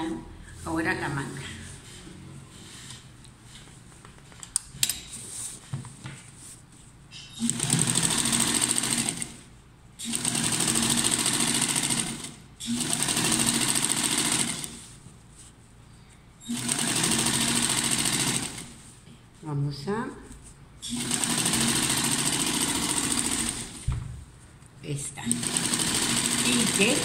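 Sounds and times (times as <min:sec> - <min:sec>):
fabric rustling: 0:05.1 - 0:07.1, 0:14.3 - 0:19.4
sewing machine stitching: 0:07.4 - 0:09.4, 0:10.0 - 0:14.8, 0:16.4 - 0:18.8, 0:20.9 - 0:23.9, 0:25.2 - 0:27.0.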